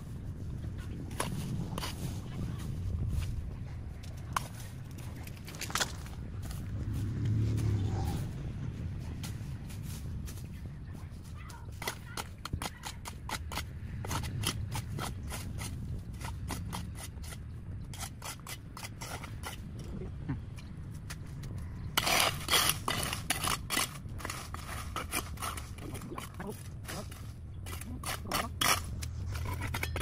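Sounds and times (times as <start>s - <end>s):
low steady rumble: 0.0s - 30.0s
hand tools snipping vegetation: 22.0s - 30.0s
rustling scrapes: 22.0s - 30.0s.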